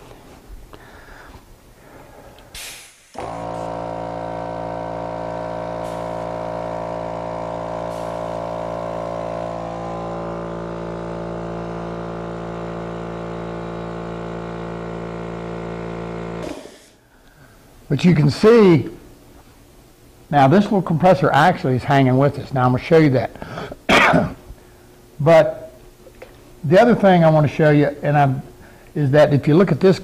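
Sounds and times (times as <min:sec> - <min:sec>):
air compressor droning hum: 0:00.0 - 0:30.0
air hiss: 0:00.8 - 0:03.8, 0:05.7 - 0:07.0, 0:07.6 - 0:10.0, 0:16.4 - 0:17.0.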